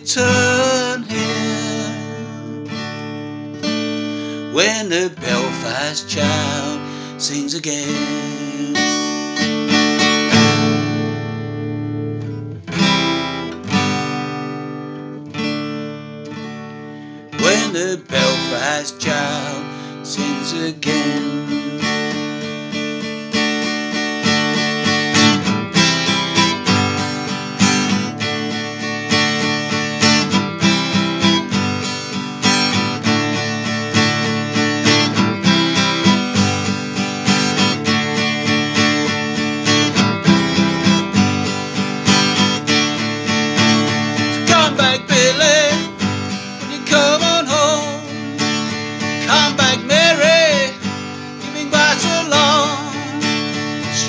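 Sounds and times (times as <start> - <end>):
acoustic guitar strumming: 0.0 - 54.0
man humming wordless melody: 4.5 - 9.1, 17.4 - 22.3, 44.4 - 54.0.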